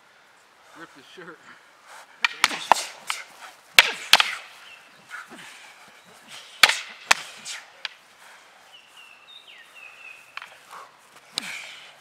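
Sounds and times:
fighting sticks striking: 0:02.1 - 0:05.4, 0:06.3 - 0:08.0, 0:10.3 - 0:11.8.

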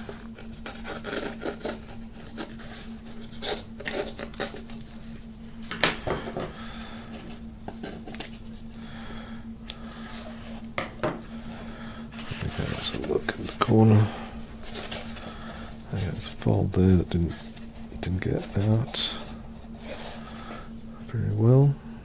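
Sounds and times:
faint hum: 0:00.0 - 0:22.0
fabric rustling and scraping: 0:12.1 - 0:13.7, 0:14.5 - 0:16.3.

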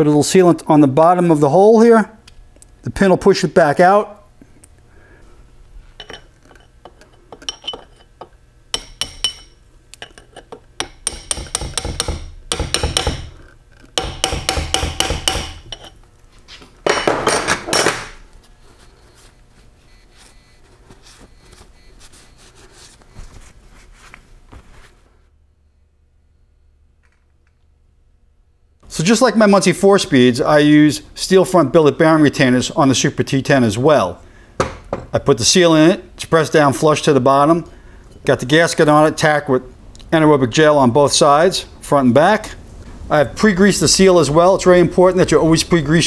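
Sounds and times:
hammer tapping steel pin: 0:08.8 - 0:09.5, 0:10.8 - 0:13.3, 0:14.0 - 0:15.8.

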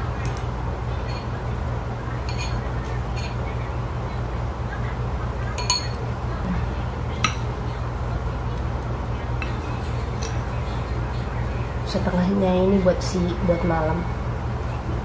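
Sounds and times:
steady low hum: 0:00.0 - 0:15.0
chopsticks clinking on porcelain bowls: 0:02.2 - 0:03.4, 0:05.6 - 0:06.0.

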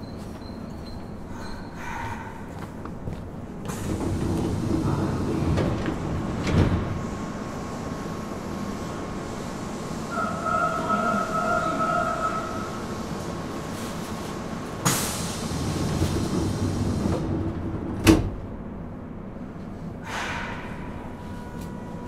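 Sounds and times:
train wheels rumbling on rail: 0:00.0 - 0:22.0
steady train whine: 0:02.6 - 0:22.0
loud train clunk: 0:03.6 - 0:07.5, 0:14.7 - 0:18.6.

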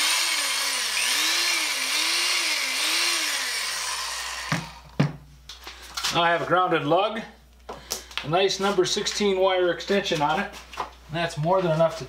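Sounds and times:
electric drill motor running: 0:00.0 - 0:05.0.

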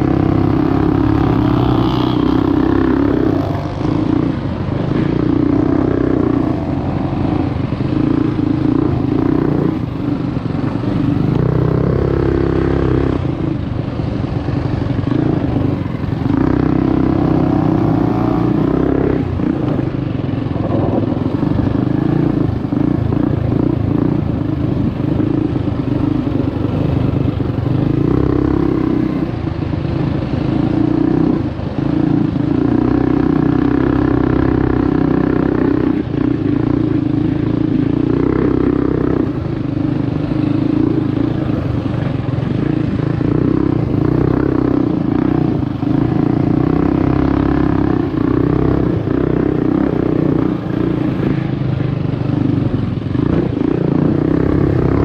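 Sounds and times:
mini bike engine running: 0:00.0 - 0:55.0.

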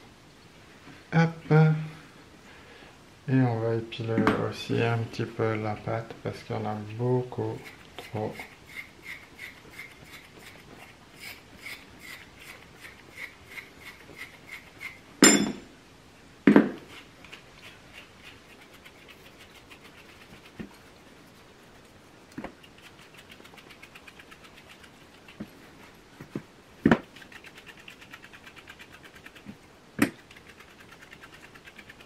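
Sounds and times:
fingers plucking dog hair: 0:16.9 - 0:25.6, 0:26.3 - 0:32.0.

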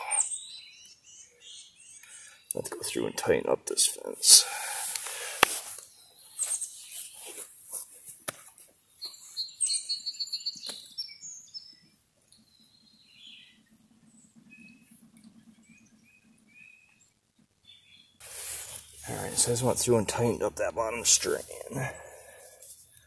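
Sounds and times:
birds chirping: 0:00.0 - 0:07.6, 0:08.8 - 0:23.0.

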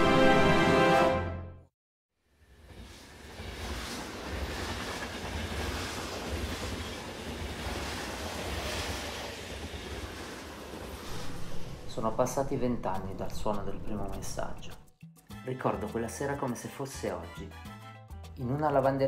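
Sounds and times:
electric train running past: 0:02.3 - 0:14.5.

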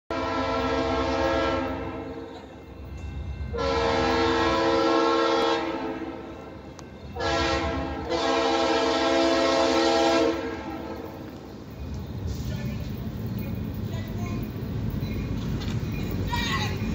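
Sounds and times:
train horn: 0:00.1 - 0:02.4, 0:03.4 - 0:11.1
train rumble: 0:00.1 - 0:16.9.

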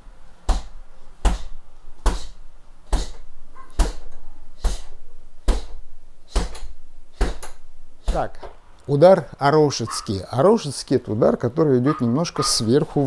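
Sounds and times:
fist punching heavy bag: 0:00.5 - 0:03.2, 0:03.8 - 0:04.0, 0:04.6 - 0:08.3.

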